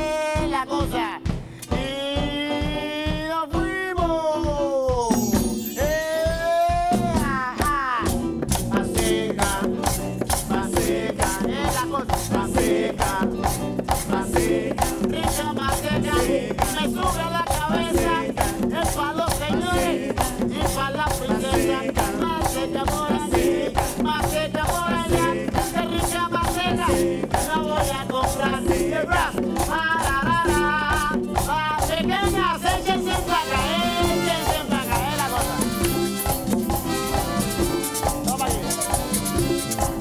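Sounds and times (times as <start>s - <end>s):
live merengue band playing: 0.0s - 40.0s
saxophone and trumpet lines: 4.6s - 8.4s, 32.2s - 40.0s
scraping guira: 7.0s - 40.0s.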